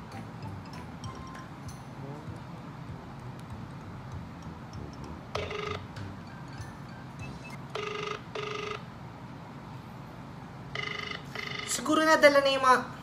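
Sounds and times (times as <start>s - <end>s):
phone ringback tone: 0.4s - 1.7s, 4.9s - 8.9s, 10.8s - 11.8s.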